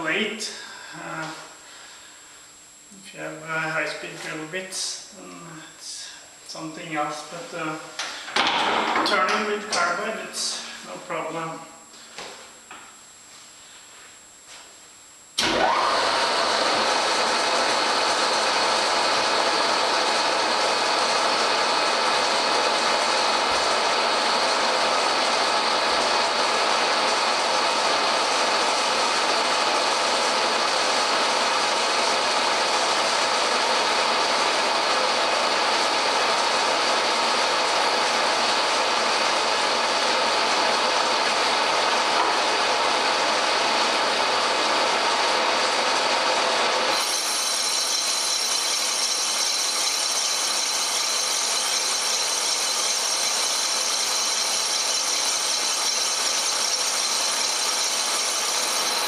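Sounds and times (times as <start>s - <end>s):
metal lathe machining: 15.4s - 59.0s.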